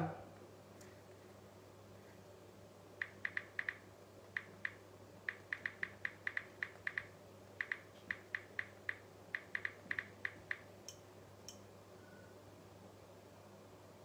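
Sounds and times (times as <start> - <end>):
faint low hum: 0.0 - 14.0
phone keyboard clicks: 3.0 - 3.8, 4.4 - 10.7.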